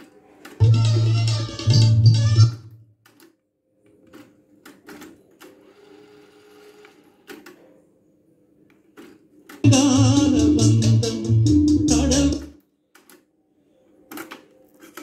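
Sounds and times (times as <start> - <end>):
music from cassette tape: 0.6 - 2.7, 9.6 - 12.6.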